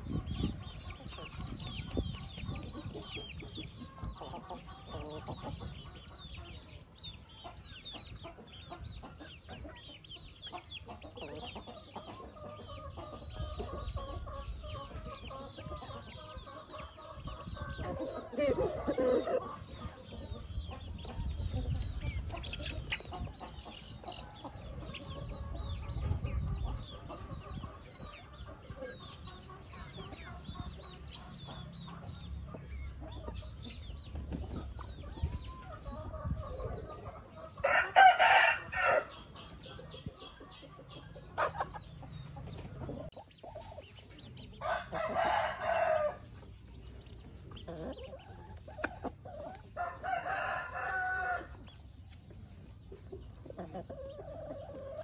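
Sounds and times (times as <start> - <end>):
rooster crowing: 37.6 - 39.1.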